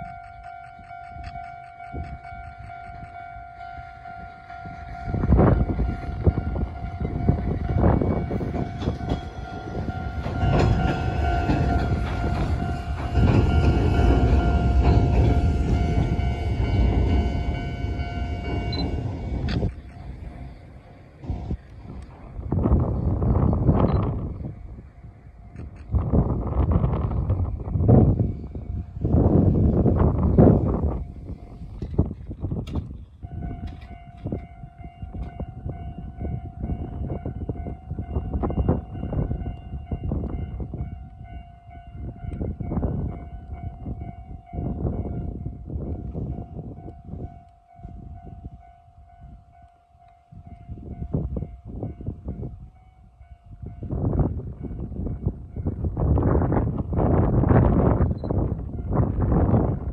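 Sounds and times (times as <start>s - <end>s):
wind buffeting microphone: 0.0s - 49.7s, 50.3s - 59.9s
train wheels clacking over rail joints: 5.8s - 20.8s.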